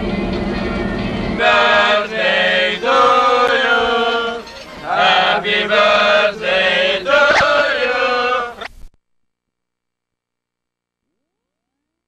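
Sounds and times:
group of voices singing: 1.4 - 8.6.

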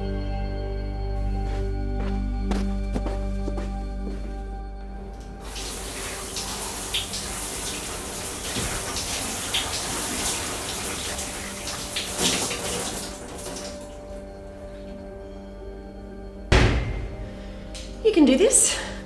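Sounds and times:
shower water spraying: 5.4 - 14.1.

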